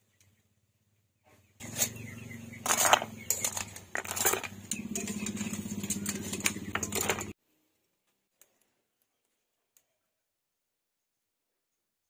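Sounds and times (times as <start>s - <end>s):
seafood clattering into a plastic bowl: 2.6s - 7.3s
metal tongs clacking on a wok: 2.6s - 7.4s.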